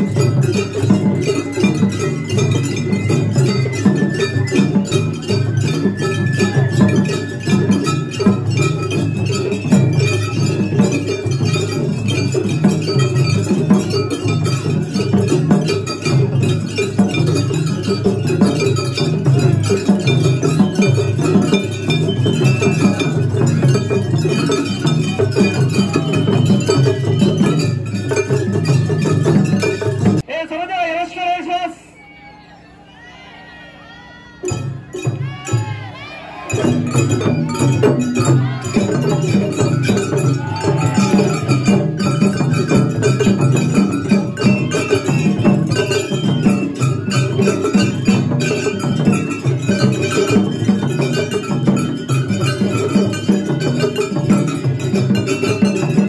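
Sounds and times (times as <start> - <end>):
taiko drums beating: 0.0 - 30.3, 34.4 - 56.0
bamboo flute high notes: 0.9 - 11.1, 25.4 - 29.0, 31.7 - 42.4, 44.2 - 48.4.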